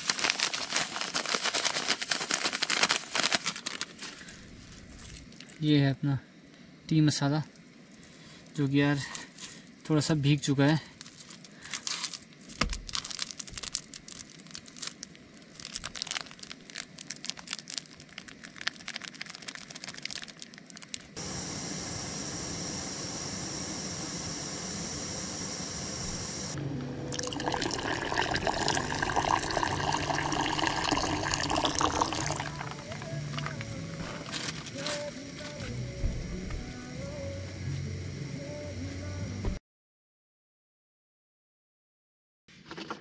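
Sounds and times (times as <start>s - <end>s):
small clicks and crackles: 0.0s - 5.6s, 11.0s - 21.2s
steady hiss: 0.0s - 12.5s, 27.4s - 36.0s
milk pouring and splashing: 27.1s - 32.8s
water boiling hard in pot: 27.1s - 32.9s.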